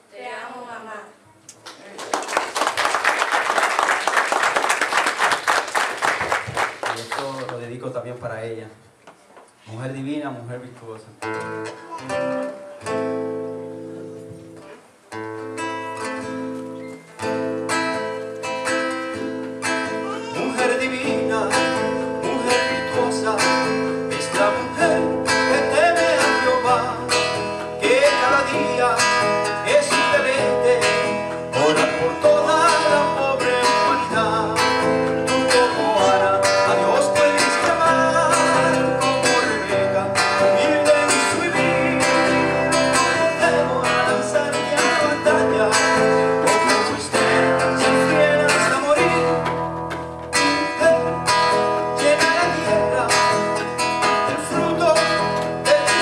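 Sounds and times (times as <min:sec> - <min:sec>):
acoustic guitar strummed: 0:11.2 - 0:56.0
keyboard accompaniment: 0:11.2 - 0:56.0.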